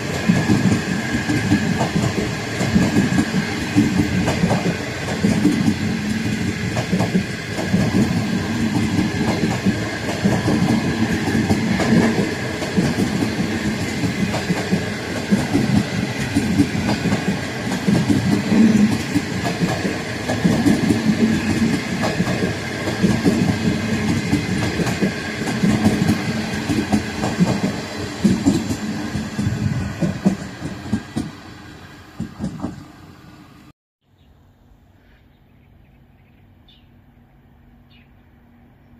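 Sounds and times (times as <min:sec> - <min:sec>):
wheels clacking over rail joints: 0:00.0 - 0:31.4
train rumbling past: 0:00.0 - 0:33.7, 0:35.7 - 0:38.9.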